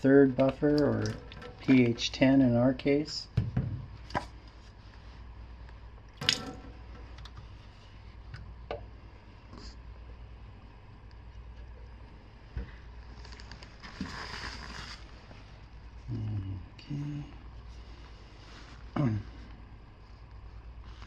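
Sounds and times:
low hum: 0:00.0 - 0:21.0
plastic cups clacking on metal bench: 0:00.4 - 0:02.2, 0:06.2 - 0:07.4.

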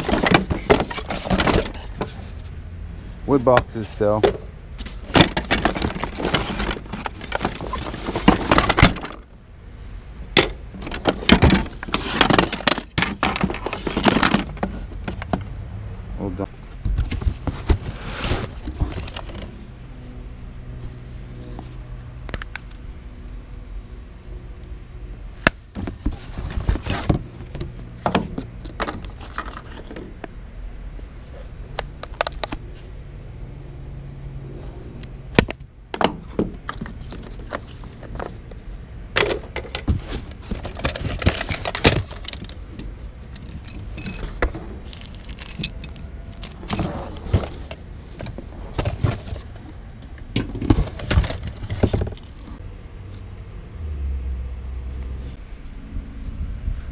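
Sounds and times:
clinks and rattles of items: 0:00.0 - 0:02.4, 0:03.3 - 0:09.4, 0:10.3 - 0:15.6, 0:16.9 - 0:19.7, 0:25.4 - 0:30.4, 0:35.4 - 0:52.6
hands rummaging through box: 0:00.0 - 0:02.4, 0:03.4 - 0:09.3, 0:10.3 - 0:15.4, 0:16.9 - 0:19.7, 0:25.5 - 0:30.2, 0:35.4 - 0:38.6, 0:39.2 - 0:52.6.

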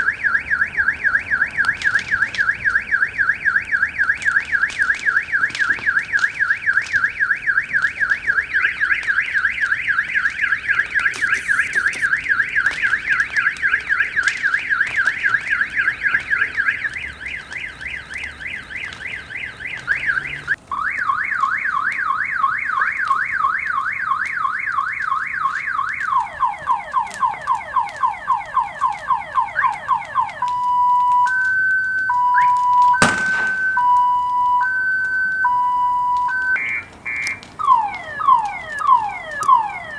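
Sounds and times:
car alarm siren: 0:00.0 - 0:39.9
sharp bang: 0:33.0 - 0:33.8.

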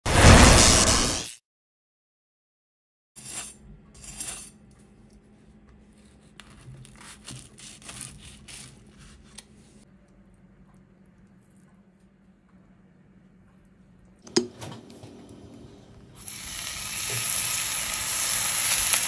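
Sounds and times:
knife crunching through crisp tortilla: 0:05.9 - 0:09.8.

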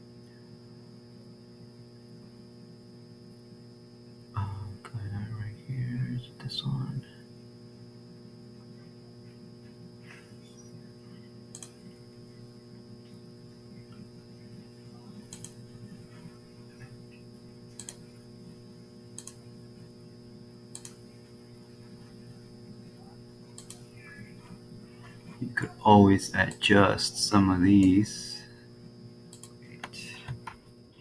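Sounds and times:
electrical mains hum: 0:00.0 - 0:31.0
computer mouse clicking: 0:11.5 - 0:11.8, 0:15.3 - 0:15.6, 0:17.7 - 0:18.0, 0:19.1 - 0:19.4, 0:20.7 - 0:21.0, 0:23.5 - 0:23.8, 0:29.3 - 0:30.6.

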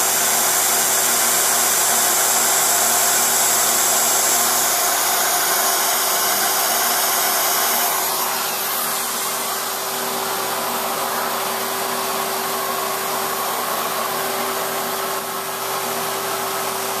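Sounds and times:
router spindle cutting plastic: 0:00.0 - 0:10.2
vacuum running: 0:00.0 - 0:17.0.

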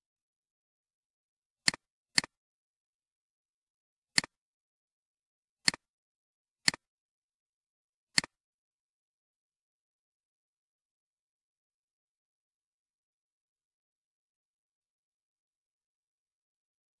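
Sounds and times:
computer mouse clicks: 0:04.2 - 0:04.4, 0:05.6 - 0:05.9, 0:06.6 - 0:06.9, 0:08.2 - 0:08.4.

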